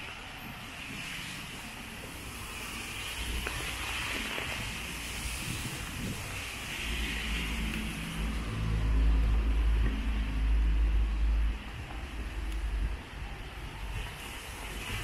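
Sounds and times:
rain on a wet street: 0.0s - 15.0s
vehicle engine rumble: 0.0s - 15.0s.

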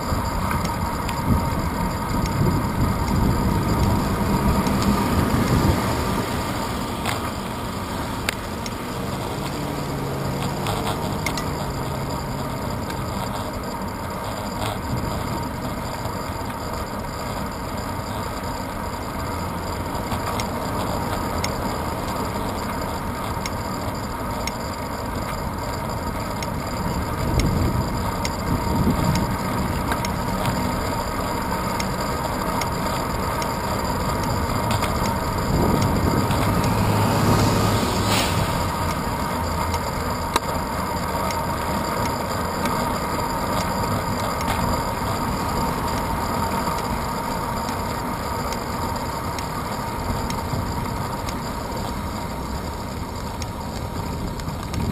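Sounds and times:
wind and tyre noise: 0.0s - 54.9s
bus rumble passing: 35.3s - 39.7s.

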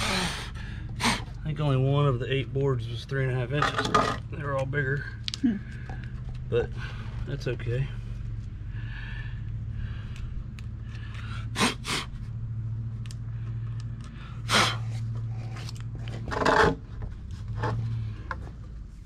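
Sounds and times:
steady low hum: 0.0s - 19.0s
lumber knocking and scraping: 3.5s - 4.4s, 15.5s - 18.8s.

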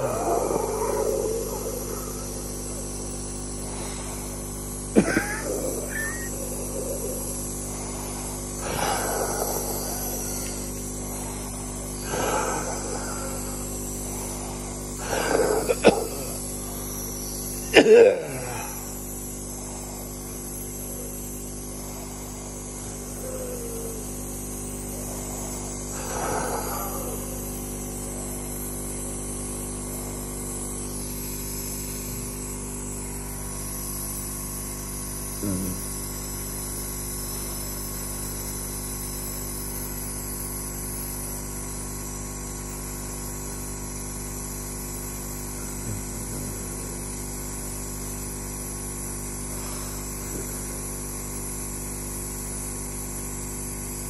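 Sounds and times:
forceful breathing bursts: 0.0s - 34.0s, 49.5s - 50.8s
nebulizer compressor humming: 0.0s - 54.0s.

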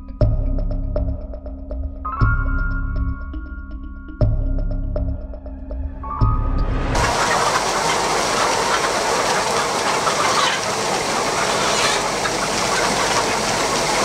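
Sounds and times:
flock of chickens clucking: 7.0s - 14.0s.

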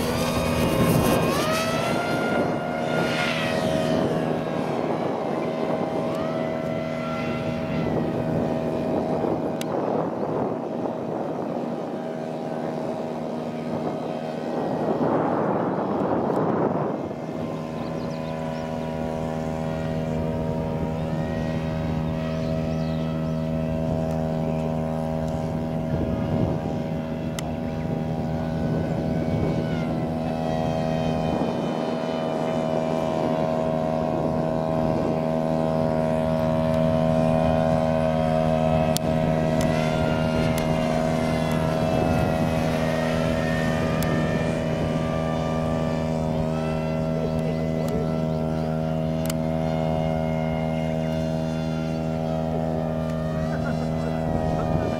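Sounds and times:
model airplane motor whining: 0.0s - 54.9s
steady low hum: 0.0s - 54.9s.

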